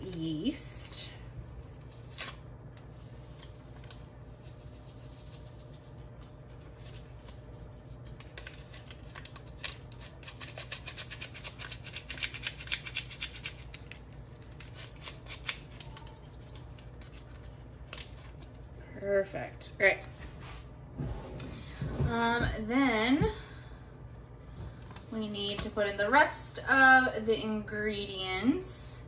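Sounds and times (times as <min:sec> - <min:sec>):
steady low hum: 0:00.0 - 0:29.0
paper packet crinkling: 0:01.5 - 0:19.2.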